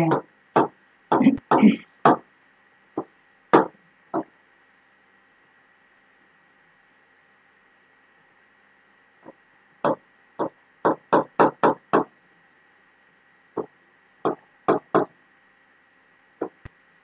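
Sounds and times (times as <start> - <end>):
stylus tapping touchscreen: 9.2 - 12.1, 16.4 - 16.8.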